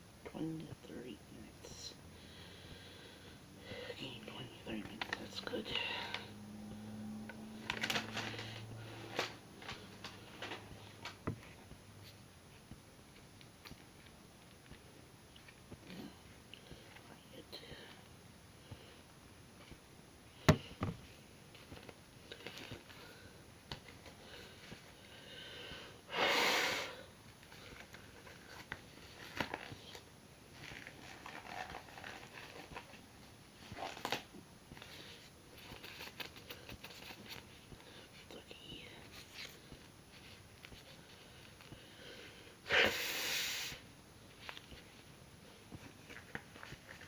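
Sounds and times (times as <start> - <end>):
person breathing loudly: 2.1 - 4.0, 24.2 - 27.1
person blowing nose: 26.1 - 27.0, 42.7 - 43.8.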